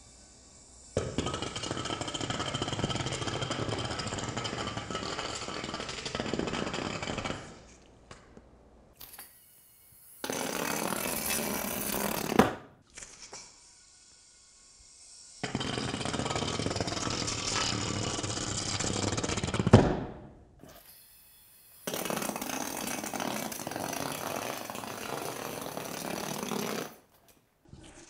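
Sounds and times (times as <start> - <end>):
yo-yo rattling on hard floor: 21.9 - 27.0.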